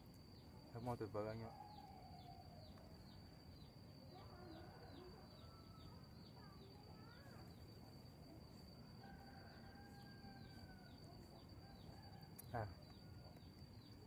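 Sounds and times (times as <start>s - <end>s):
high insect whine: 0.0s - 14.0s.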